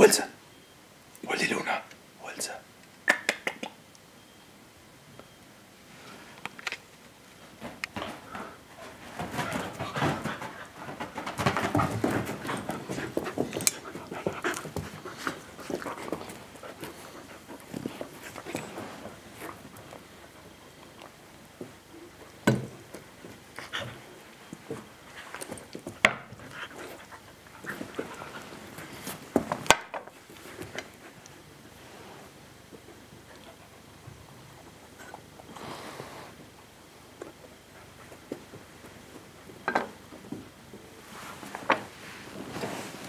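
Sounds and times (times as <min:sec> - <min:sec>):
dogs scuffling: 0:06.9 - 0:35.9
dogs panting: 0:08.0 - 0:22.2, 0:22.9 - 0:31.8, 0:33.0 - 0:35.5.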